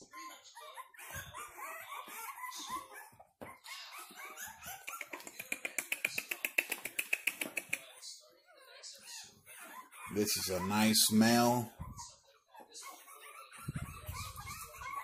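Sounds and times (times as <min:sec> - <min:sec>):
puppies whining and yelping: 0:00.0 - 0:05.4, 0:07.9 - 0:15.0
puppies yipping sharply: 0:00.0 - 0:06.0, 0:09.0 - 0:15.0.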